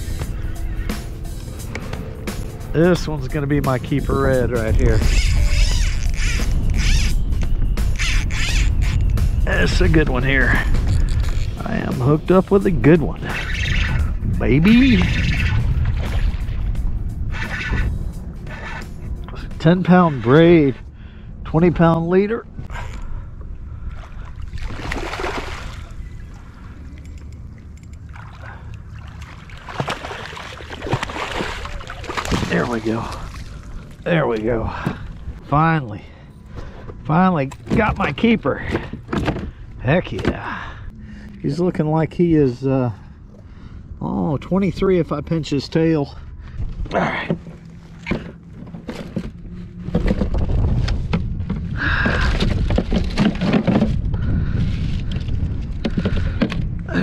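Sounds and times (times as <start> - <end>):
steady low rumble: 0.0 - 57.0
fish thrashing and splashing: 24.1 - 26.5, 28.0 - 34.0.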